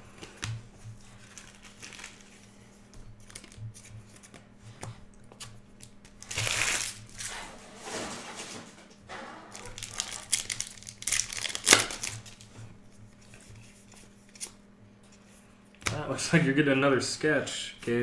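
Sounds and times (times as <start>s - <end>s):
foil wrapper crinkling: 1.1s - 2.5s, 5.8s - 7.3s, 9.5s - 12.5s
trading cards handled: 13.2s - 15.3s.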